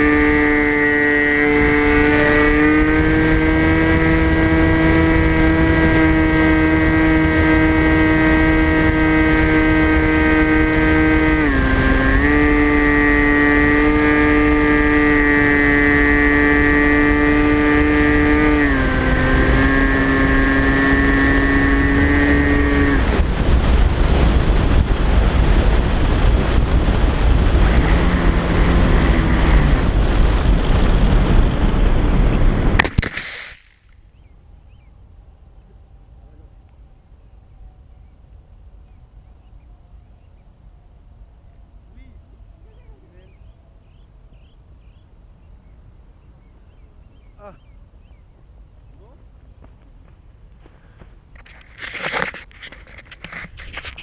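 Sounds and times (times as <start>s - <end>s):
electric motor whine: 0.0s - 31.6s
wind rushing over microphone: 0.0s - 33.7s, 37.1s - 54.0s.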